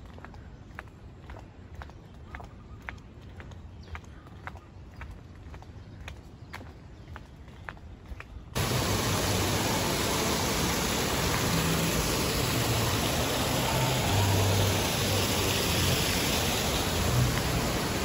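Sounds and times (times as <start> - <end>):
fountain water splashing: 8.6 - 18.0.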